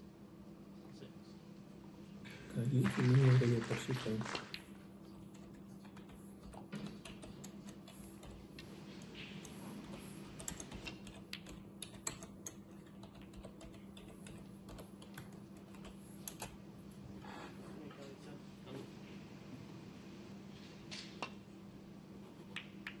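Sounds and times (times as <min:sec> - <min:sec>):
faint steady hum: 0:00.0 - 0:23.0
computer keyboard key clicks: 0:05.3 - 0:08.4, 0:09.4 - 0:16.6.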